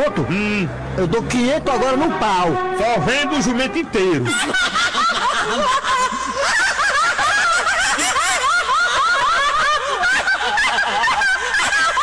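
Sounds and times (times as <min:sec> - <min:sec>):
crowd laughing: 0:04.0 - 0:12.0.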